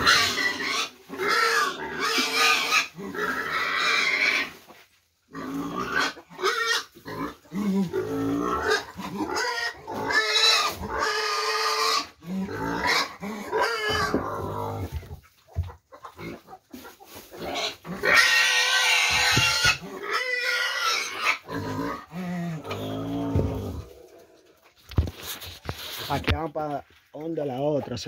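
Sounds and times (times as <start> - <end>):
pig squealing: 0.0 - 4.6, 5.3 - 14.9, 17.3 - 24.2.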